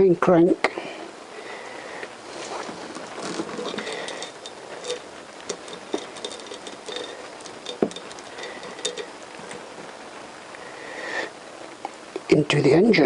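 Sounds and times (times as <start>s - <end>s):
chain links rattling: 2.4s - 10.0s.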